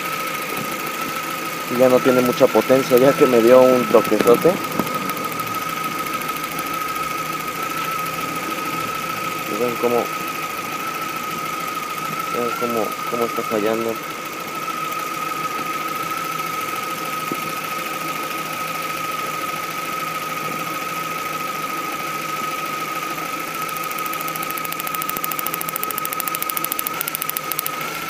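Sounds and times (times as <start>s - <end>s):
car engine idling rough: 0.0s - 26.1s
steady high whine: 0.0s - 28.0s
crackle of sparking ticks: 23.7s - 27.8s.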